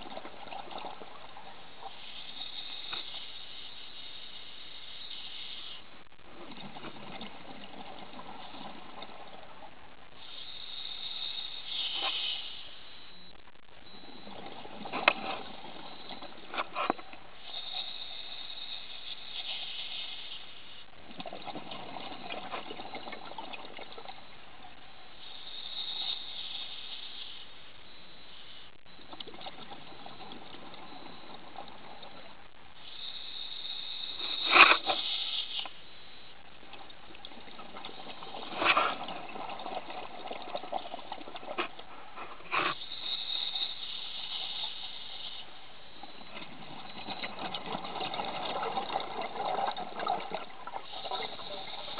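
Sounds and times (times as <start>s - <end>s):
exhaled bubbles gurgling: 0.0s - 2.9s, 6.2s - 9.9s, 20.9s - 24.4s, 28.9s - 32.5s, 36.5s - 43.6s, 45.9s - 51.9s
regulator inhale hiss: 1.9s - 6.0s, 10.2s - 13.1s, 17.4s - 20.9s, 25.2s - 28.8s, 32.7s - 36.4s, 42.4s - 46.2s.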